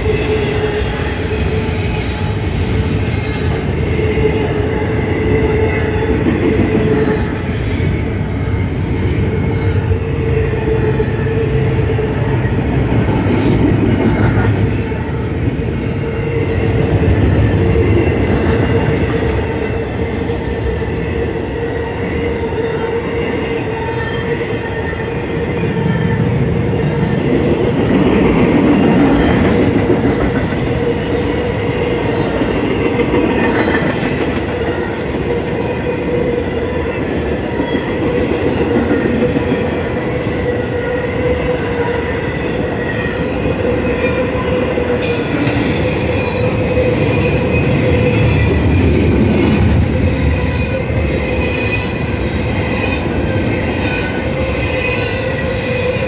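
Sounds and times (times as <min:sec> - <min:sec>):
train wheels rumbling and clacking: 0:00.0 - 0:56.0.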